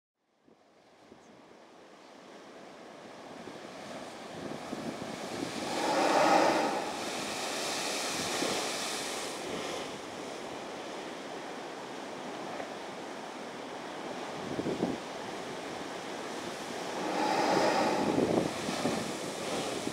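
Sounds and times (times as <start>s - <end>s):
surf washing over rocks: 3.3s - 19.9s
blowhole spray rushing: 4.8s - 9.2s, 16.3s - 19.9s.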